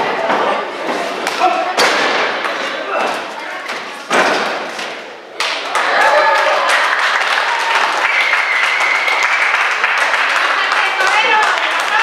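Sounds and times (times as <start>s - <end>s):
crowd clapping: 5.4s - 12.0s
crowd shouting and cheering: 5.4s - 12.0s.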